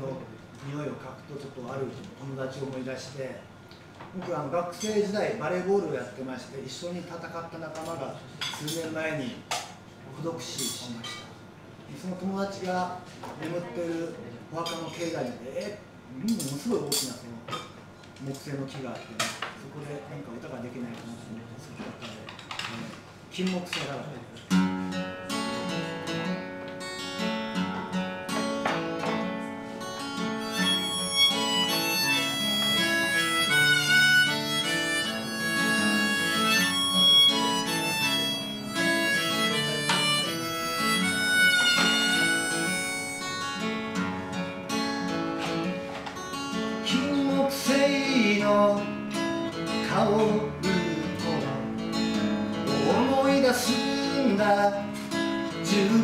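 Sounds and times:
acoustic guitar strumming chords: 0:24.5 - 0:56.0
harmonica melody: 0:29.8 - 0:45.1.

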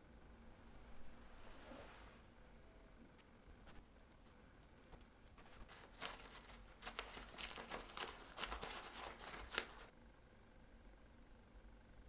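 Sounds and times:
paper towel scrubbing metal: 0:05.3 - 0:09.9.

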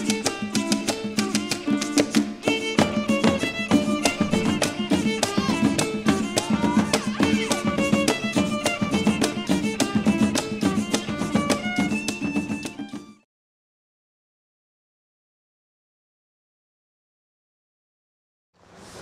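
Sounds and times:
lively instrumental music: 0:00.0 - 0:13.3.

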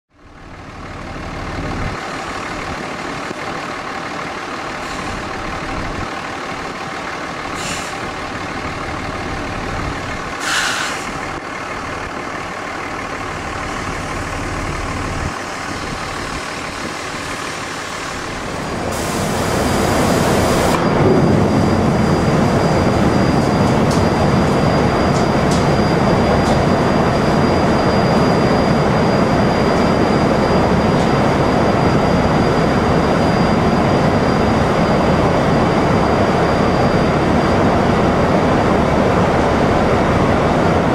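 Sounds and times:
diesel truck engine running: 0:00.1 - 0:40.9
air brake hisses: 0:04.8 - 0:05.3, 0:07.6 - 0:08.1, 0:10.4 - 0:11.3, 0:18.9 - 0:20.8.

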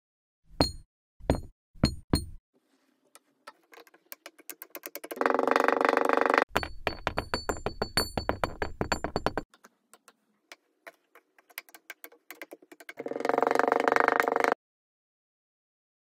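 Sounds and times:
glass ringing: 0:06.5 - 0:09.5.

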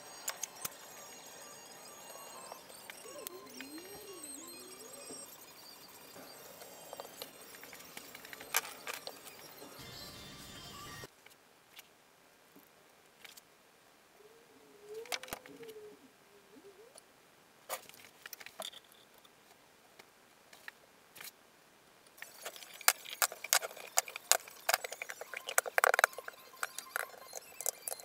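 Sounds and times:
wavering squeak: 0:00.0 - 0:11.1, 0:22.2 - 0:28.0.

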